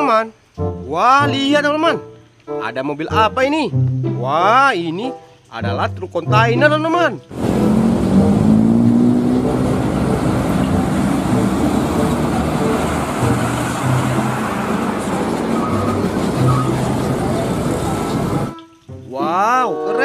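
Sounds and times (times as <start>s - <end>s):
road traffic rumble: 7.2s - 19.1s
engine accelerating: 7.3s - 18.5s.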